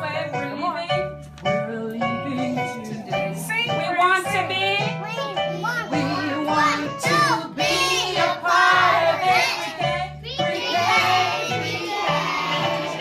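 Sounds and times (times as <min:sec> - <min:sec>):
children singing: 0:05.9 - 0:13.0.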